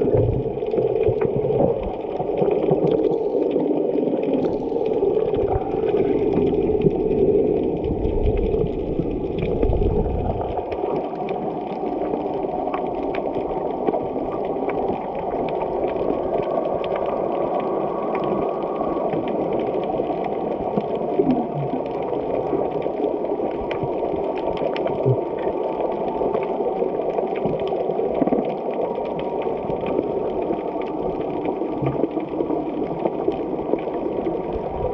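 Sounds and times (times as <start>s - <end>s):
faint clicks: 0.0s - 34.8s
underwater water wash: 0.0s - 34.9s
low rumble: 4.6s - 10.8s.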